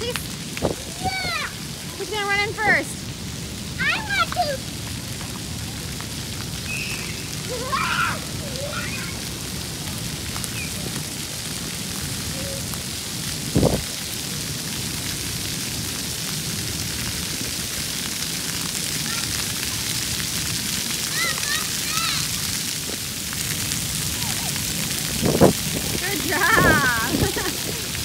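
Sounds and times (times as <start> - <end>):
fountain jets spraying water: 0.0 - 28.0
children shouting: 7.0 - 9.3, 21.1 - 22.4.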